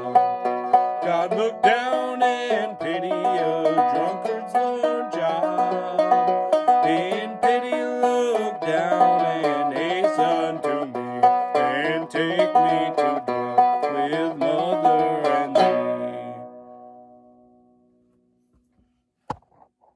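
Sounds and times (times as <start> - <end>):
banjo picking: 0.0 - 17.6
banjo strum ringing out: 0.0 - 17.6.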